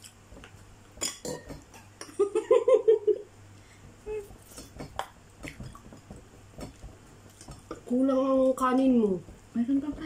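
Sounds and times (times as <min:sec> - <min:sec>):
utensils clicking on metal bowl: 0:06.6 - 0:09.2.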